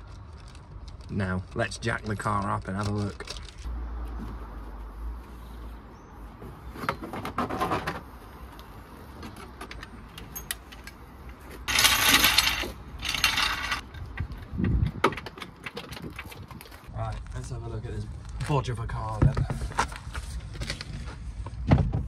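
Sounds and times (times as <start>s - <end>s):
steel trolley jack clanking: 11.7s - 13.8s.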